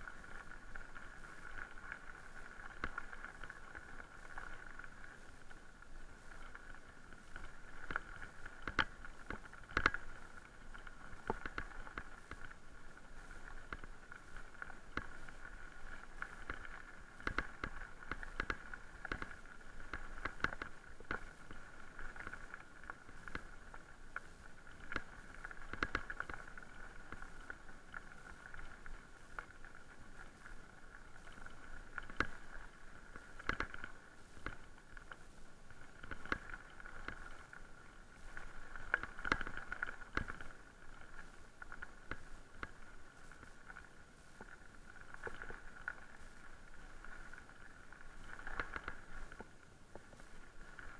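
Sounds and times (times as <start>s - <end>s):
bike knocking and rattling: 6.3s - 15.4s, 16.0s - 21.5s, 24.2s - 27.6s, 33.1s - 34.7s, 38.2s - 40.6s.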